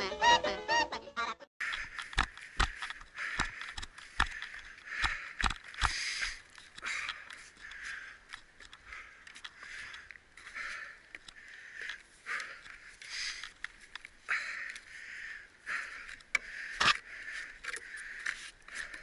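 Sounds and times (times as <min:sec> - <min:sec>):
breathy puffs: 0:01.6 - 0:19.0.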